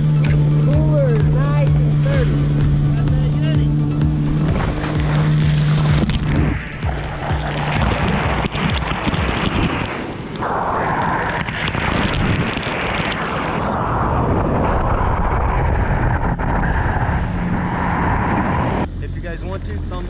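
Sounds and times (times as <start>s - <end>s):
jet ski engine running low: 0.0s - 12.4s
wind rushing over microphone: 0.0s - 19.0s
water spray rushing: 3.8s - 13.6s.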